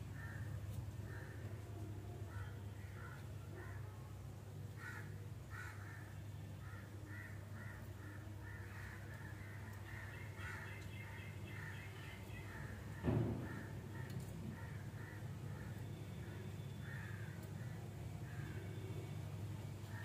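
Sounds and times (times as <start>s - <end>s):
birds calling: 4.8s - 19.2s.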